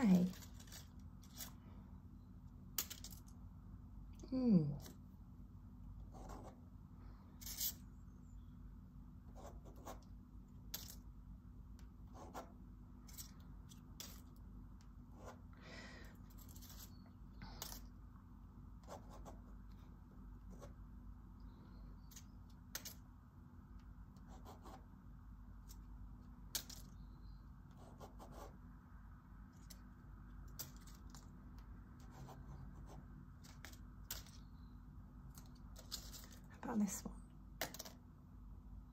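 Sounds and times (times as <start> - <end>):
low room hum: 0.0 - 38.9
marker scratching on paper: 6.1 - 6.6, 18.8 - 19.5, 27.7 - 28.6.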